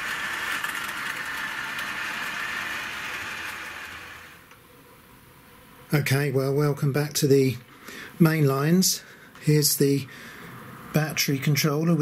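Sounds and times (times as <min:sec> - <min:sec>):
model train motor whirring: 0:00.0 - 0:04.6.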